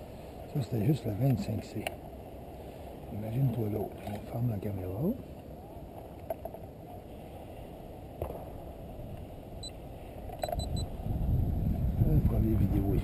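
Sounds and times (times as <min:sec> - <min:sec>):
low background noise: 0:00.0 - 0:13.0
camera beeps: 0:10.4 - 0:10.9.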